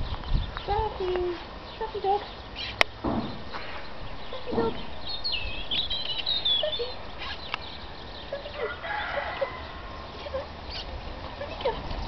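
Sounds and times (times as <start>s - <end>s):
bird chirps and clucking: 0.0s - 12.0s
high wavering bird whistles: 5.0s - 7.6s.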